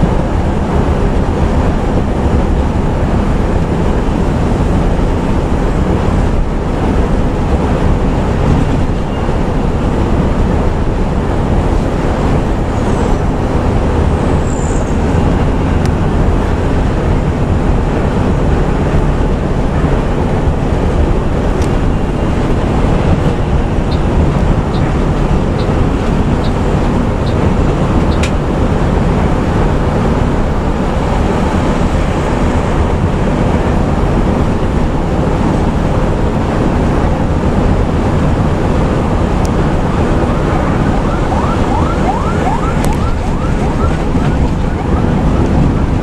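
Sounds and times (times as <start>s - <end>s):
bus engine and road noise: 0.0s - 46.0s
turn signal ticking: 23.8s - 28.4s
ambulance siren: 39.6s - 46.0s.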